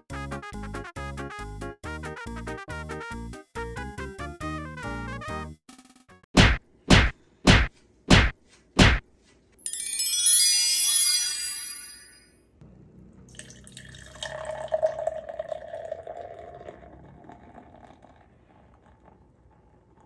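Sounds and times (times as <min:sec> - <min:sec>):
shimmering chime: 0:09.6 - 0:12.4
beer pouring into a glass: 0:13.3 - 0:20.0.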